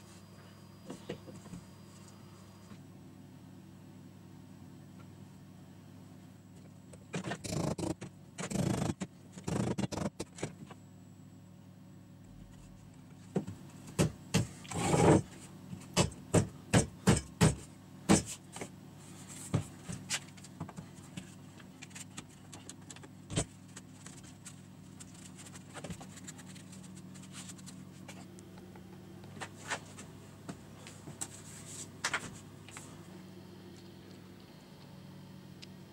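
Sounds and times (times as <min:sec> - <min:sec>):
sharp knocks on wood: 0:16.0 - 0:18.3.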